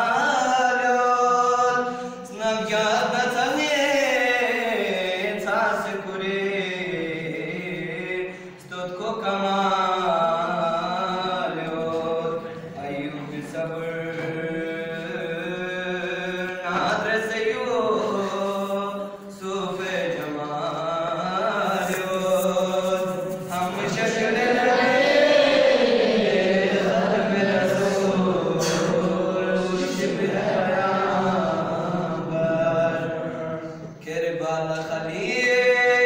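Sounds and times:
man chanting through a loudspeaker: 0.0s - 36.0s.

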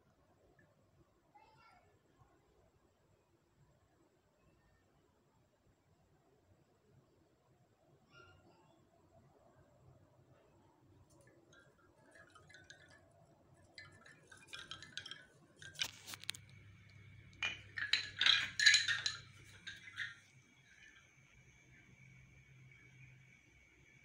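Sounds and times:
bamboo wind chime clacking: 11.2s - 23.2s.

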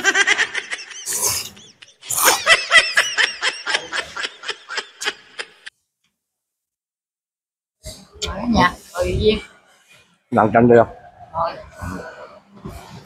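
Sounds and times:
person laughing: 0.0s - 5.7s.

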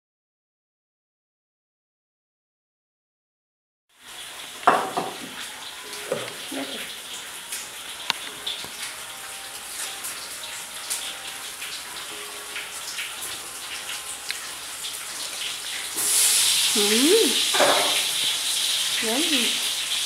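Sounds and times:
loud steady hiss: 13.4s - 20.0s.

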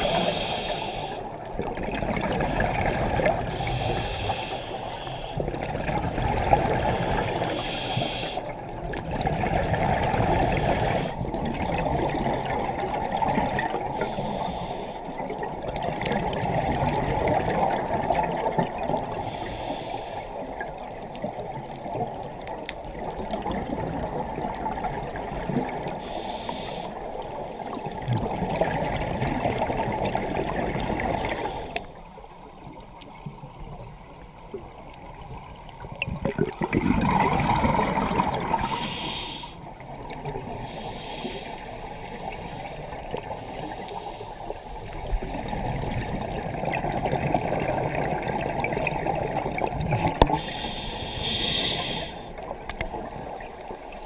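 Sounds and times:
diver breathing through regulator: 0.0s - 1.4s, 2.4s - 5.6s, 6.8s - 8.6s, 10.2s - 11.3s, 13.8s - 15.2s, 19.1s - 20.5s, 25.9s - 27.2s, 31.2s - 32.0s, 38.4s - 39.8s, 40.5s - 45.1s, 50.2s - 52.5s
bubbling exhalations: 36.0s - 38.9s
short high hisses: 50.5s - 52.3s.

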